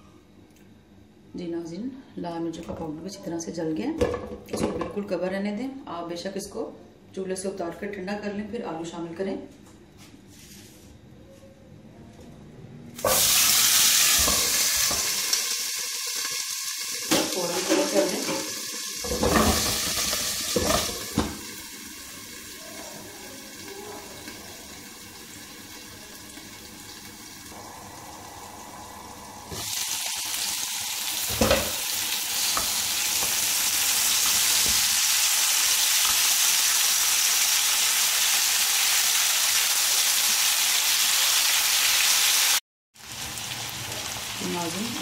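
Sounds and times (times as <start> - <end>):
potatoes sizzling in oil: 13.0 - 45.0
knock on pan: 19.1 - 21.5, 31.3 - 31.8.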